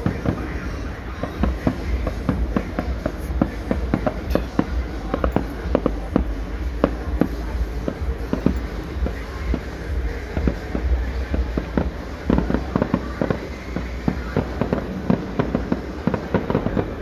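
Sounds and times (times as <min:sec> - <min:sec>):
fireworks bangs and pops: 0:00.0 - 0:17.0
low rumble: 0:00.0 - 0:17.0.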